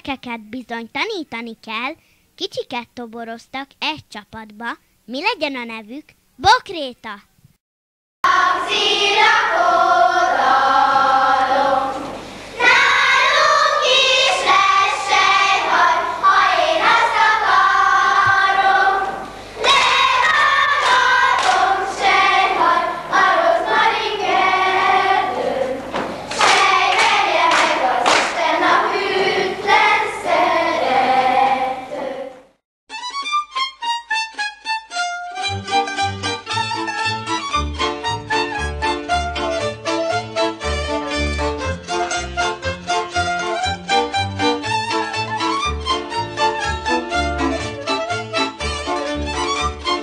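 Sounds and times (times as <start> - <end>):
low tape hum: 0.0 - 7.6, 8.3 - 32.6
young children singing: 8.3 - 32.5
instrumental music: 32.9 - 50.0.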